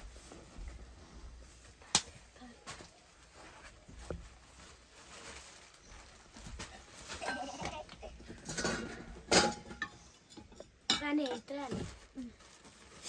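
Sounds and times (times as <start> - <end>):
metal kettles and pot clanking: 7.1 - 11.8.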